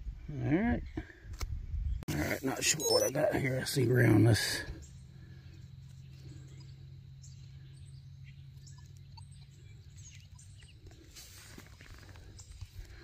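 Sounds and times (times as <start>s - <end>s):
faint bird chirps: 1.9s - 13.0s
low steady rumble: 3.4s - 13.0s.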